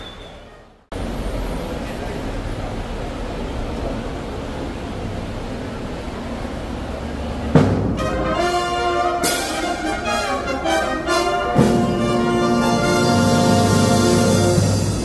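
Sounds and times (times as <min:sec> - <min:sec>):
brass band chords: 0:07.6 - 0:15.0.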